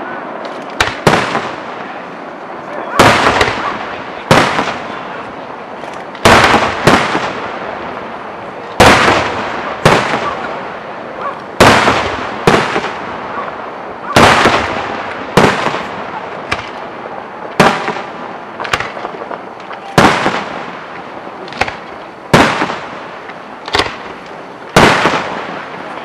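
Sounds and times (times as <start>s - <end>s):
firework shells bursting: 17.5s - 25.9s.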